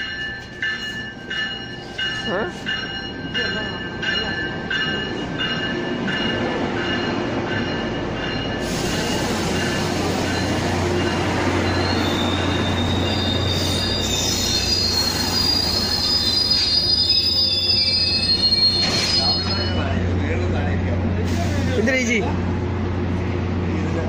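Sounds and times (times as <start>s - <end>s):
train rumbling past: 0.0s - 24.0s
high-pitched wheel squeal: 11.6s - 19.8s.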